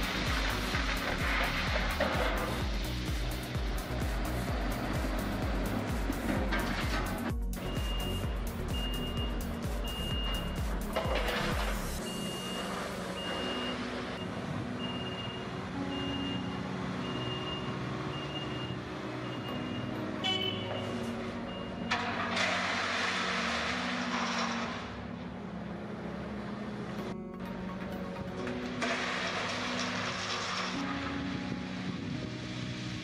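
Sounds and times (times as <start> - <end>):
gravel falling into steel truck body: 0.0 - 3.0, 10.3 - 13.5, 21.9 - 25.0, 27.8 - 31.3
diesel engine idling: 0.0 - 23.5
truck reversing alarm beeping: 7.4 - 22.1.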